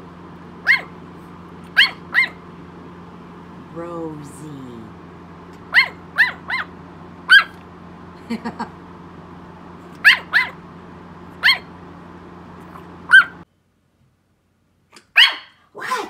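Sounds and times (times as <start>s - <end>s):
puppy yapping: 0.6s - 1.0s, 1.7s - 2.4s, 5.7s - 7.6s, 10.0s - 10.6s, 11.4s - 11.7s, 13.1s - 13.4s, 15.0s - 16.0s.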